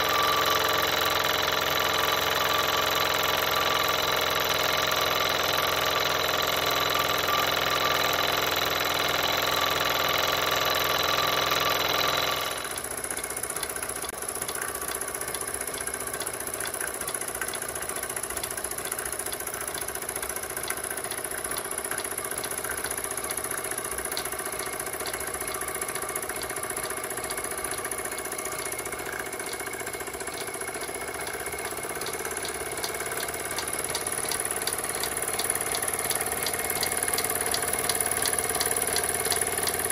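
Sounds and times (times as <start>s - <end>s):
fast even ticking: 0.0s - 39.9s
toy steam engine running: 0.0s - 39.9s.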